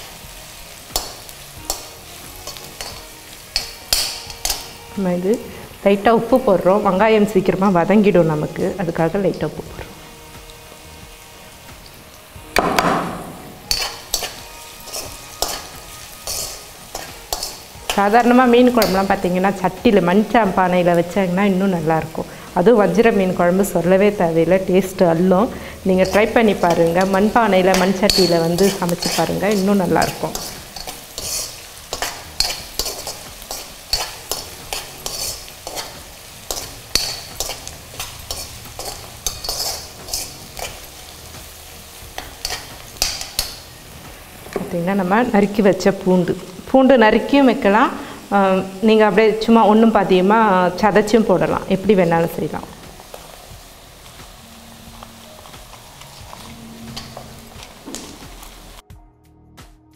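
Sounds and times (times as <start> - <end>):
steel spoon scraping a pan: 0.0 - 4.8, 13.5 - 19.6, 25.5 - 43.7, 53.0 - 58.8
onions sizzling in oil: 0.0 - 58.8.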